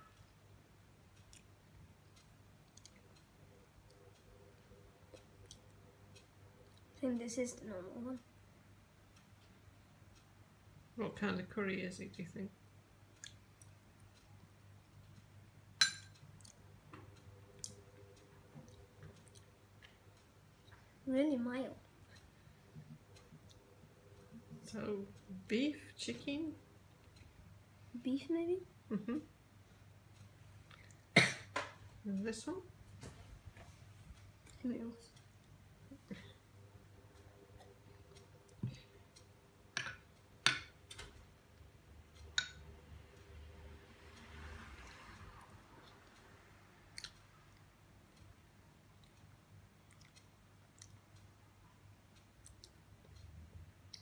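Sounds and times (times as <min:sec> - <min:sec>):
room hum: 0:00.0 - 0:54.0
metal spoon clinking on ceramic bowl: 0:15.8 - 0:16.2.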